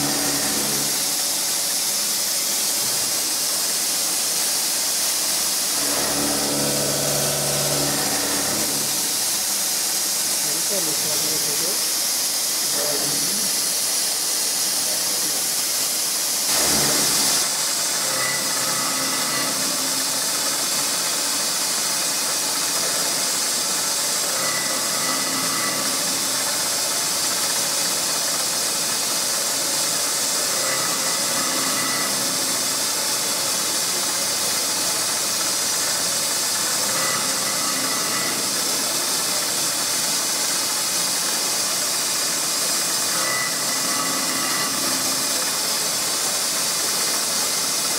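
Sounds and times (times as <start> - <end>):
milling machine hissing: 0.0 - 47.9.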